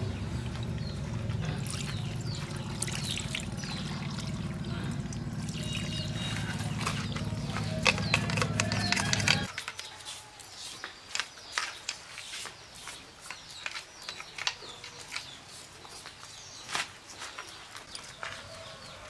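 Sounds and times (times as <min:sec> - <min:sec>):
low steady hum: 0:00.0 - 0:09.5
birds chirping: 0:00.0 - 0:19.0
brush scraping metal parts: 0:06.0 - 0:16.1.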